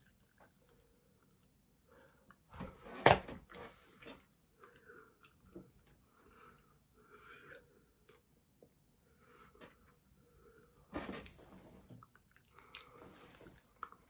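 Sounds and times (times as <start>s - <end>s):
person chewing: 0.0s - 2.5s, 4.0s - 5.9s, 6.5s - 8.2s, 11.8s - 14.0s.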